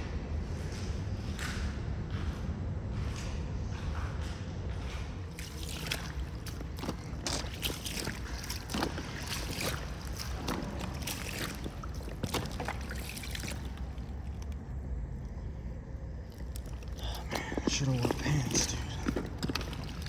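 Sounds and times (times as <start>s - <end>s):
steady low rumble: 0.0s - 20.0s
crunching footsteps on stone: 4.7s - 14.7s, 16.1s - 20.0s.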